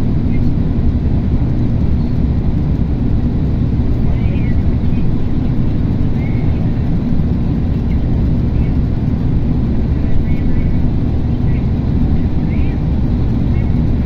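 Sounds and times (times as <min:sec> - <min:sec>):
road and tyre noise: 0:00.0 - 0:14.0.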